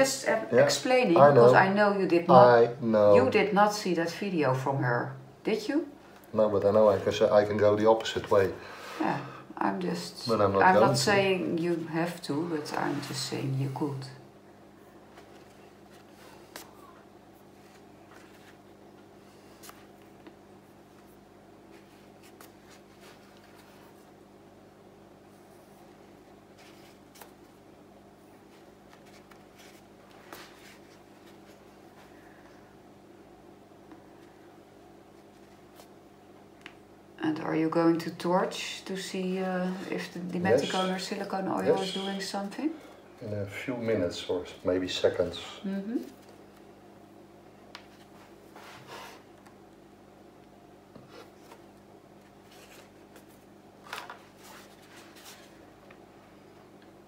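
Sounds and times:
steady low hum: 0:00.0 - 0:57.0
soft rustles or scrapes: 0:10.7 - 0:14.0, 0:14.8 - 0:24.2, 0:25.4 - 0:27.6, 0:28.2 - 0:32.4, 0:47.8 - 0:49.3, 0:52.3 - 0:55.6.

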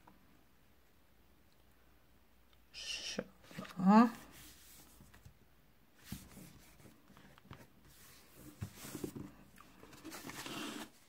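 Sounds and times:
hands smoothing paper: 0:03.5 - 0:05.2
card sheets sliding rustle: 0:06.0 - 0:11.0.

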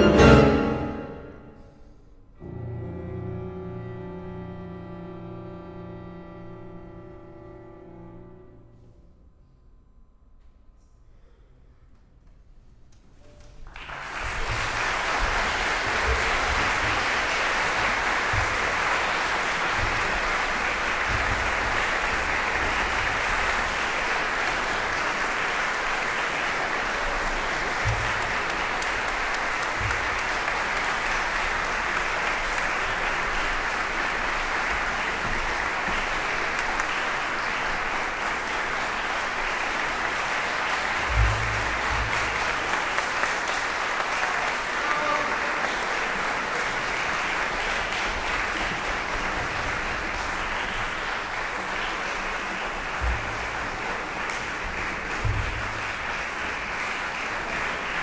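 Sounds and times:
audience applauding: 0:13.4 - 0:58.0.

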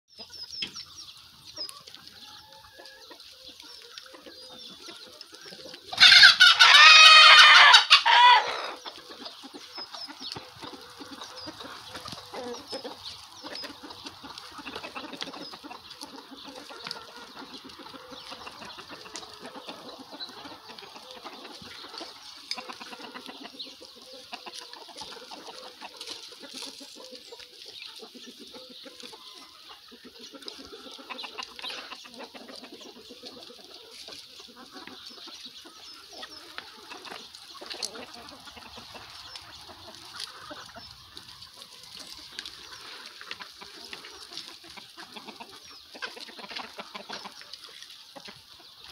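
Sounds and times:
chickens clucking: 0:00.1 - 0:48.9
chicken loud drawn-out call: 0:05.9 - 0:08.8.

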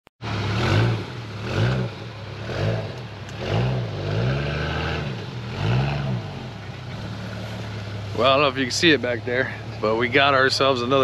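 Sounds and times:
vehicle engine revving: 0:00.2 - 0:11.0.

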